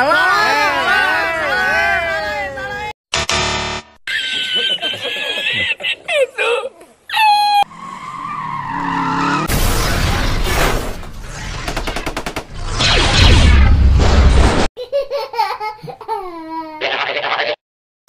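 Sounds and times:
loud explosion with rumble: 9.5 - 14.7.

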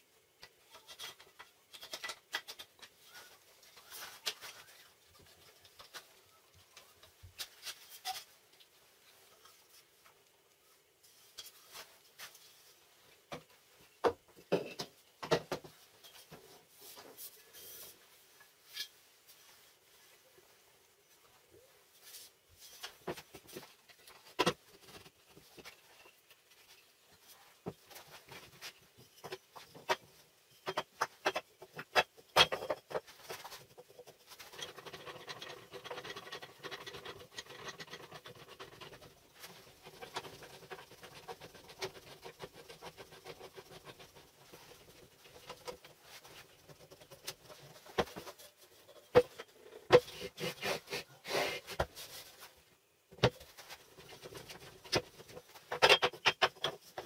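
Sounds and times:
scraping and sliding: 30.6 - 52.6.

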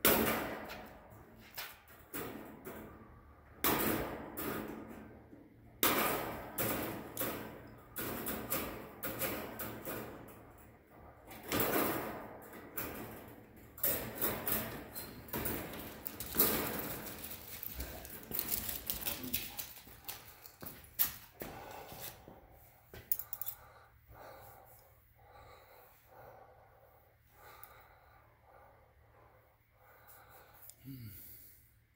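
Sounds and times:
wire fencing rattling and clanking: 5.8 - 20.6.

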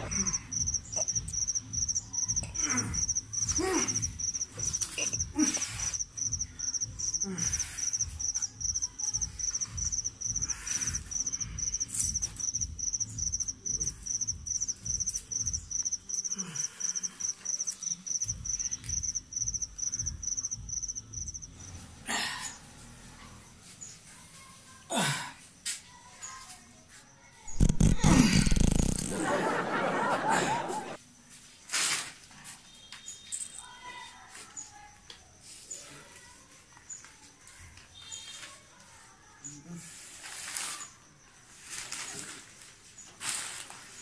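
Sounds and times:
cricket chirping: 0.0 - 24.0, 26.9 - 30.9.

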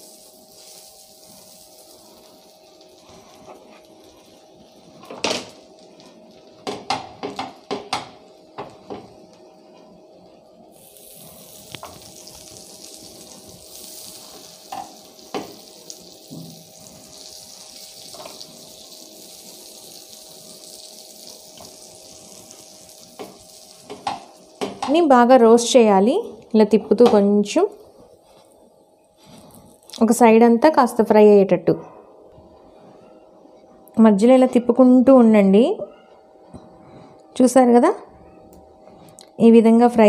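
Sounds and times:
butter sizzling: 0.0 - 26.0, 26.6 - 30.2
buns knocking on iron griddle: 6.6 - 9.1, 14.7 - 15.6, 23.2 - 25.0.

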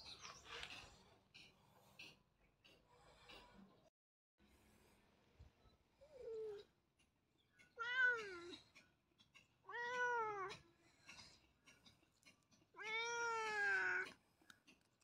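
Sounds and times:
cat meowing: 12.8 - 14.1.

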